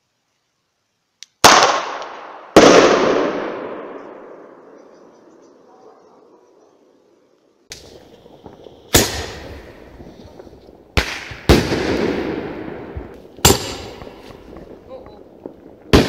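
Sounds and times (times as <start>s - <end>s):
fireworks bangs with echo: 1.4s - 5.1s, 7.7s - 16.0s.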